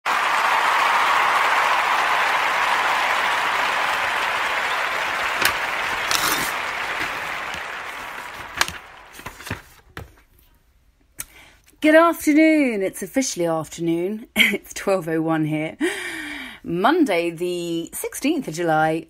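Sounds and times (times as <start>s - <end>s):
single claps: 0.0s - 9.6s
crowd applauding: 0.0s - 9.8s.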